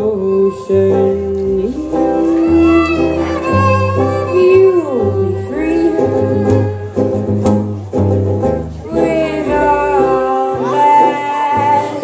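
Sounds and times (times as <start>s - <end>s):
acoustic guitar: 0.0s - 12.0s
fiddle melody: 0.0s - 12.0s
plucked upright bass: 0.0s - 12.0s.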